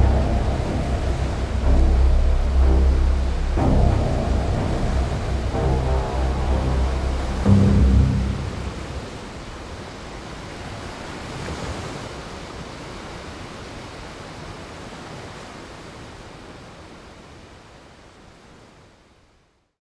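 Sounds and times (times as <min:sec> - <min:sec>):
steady rushing noise: 0:00.0 - 0:11.3.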